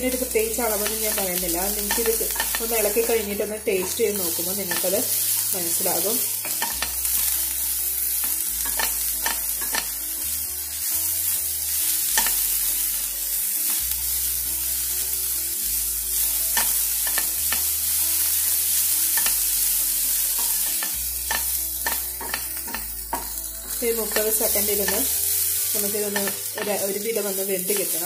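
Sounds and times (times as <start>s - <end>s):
vegetables sizzling in a pan: 0.0s - 28.0s
spatula scraping a pan: 0.1s - 10.0s, 16.2s - 28.0s.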